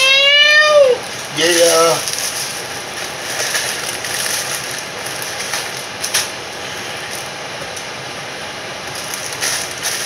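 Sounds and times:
cardboard box and plastic pouch rustling: 1.0 - 6.3, 8.9 - 10.0.

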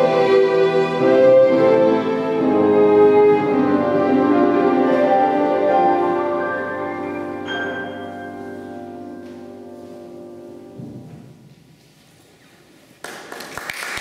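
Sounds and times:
violins and piano chord: 0.0 - 11.4
audience applause: 13.0 - 14.0.

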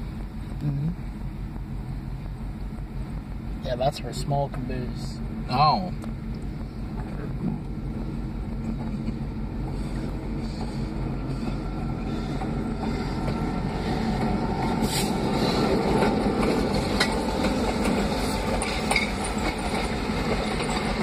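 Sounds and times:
train rumbling past: 0.0 - 21.0
wheels clicking over rail joints: 6.0 - 21.0.

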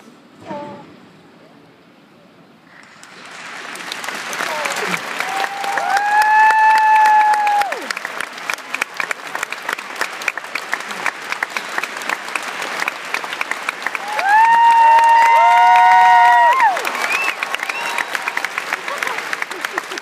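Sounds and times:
audience applauding: 2.7 - 20.0
people whooping: 4.4 - 8.0, 13.9 - 20.0.

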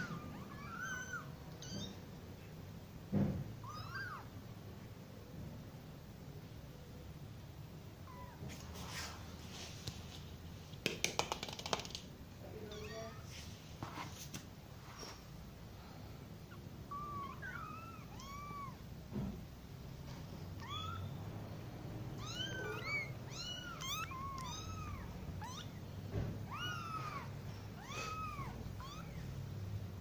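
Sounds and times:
kittens mewing: 0.0 - 2.1, 16.4 - 19.0, 20.5 - 21.3, 21.9 - 29.6.

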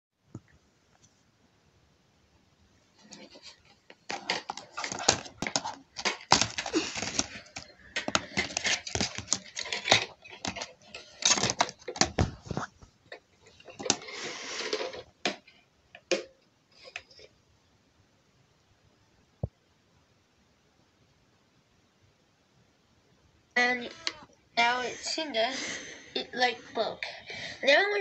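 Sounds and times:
scraping rustle: 2.9 - 15.1
plastic disc case clicking and rustling: 3.0 - 16.3.

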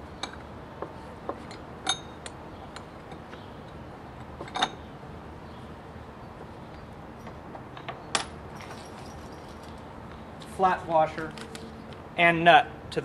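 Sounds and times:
metal washers clinking: 1.3 - 4.9, 6.7 - 9.9.

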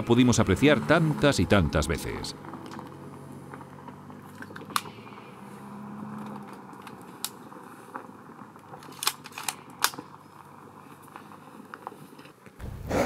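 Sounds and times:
metallic rifle clicks: 8.8 - 10.1.

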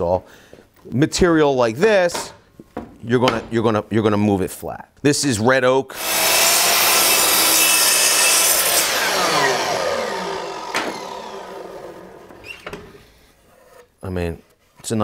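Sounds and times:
miter saw cutting wood: 5.9 - 13.2
saw blade winding down: 6.0 - 13.0.

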